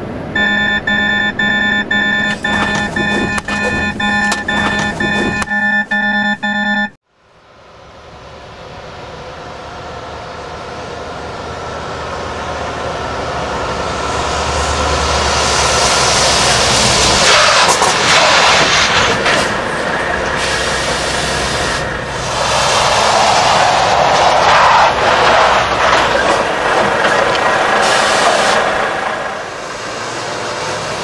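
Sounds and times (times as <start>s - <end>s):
truck engine and tyre noise: 0.0s - 31.0s
truck brakes hissing: 15.6s - 24.6s, 27.6s - 28.9s.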